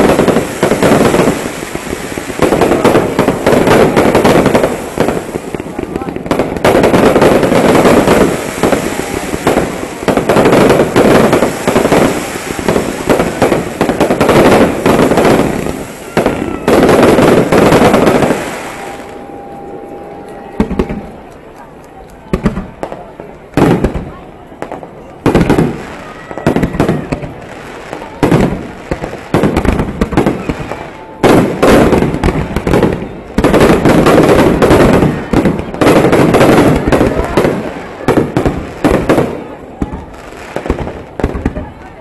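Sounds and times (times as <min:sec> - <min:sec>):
fireworks bursting and crackling: 0:00.0 - 0:42.0.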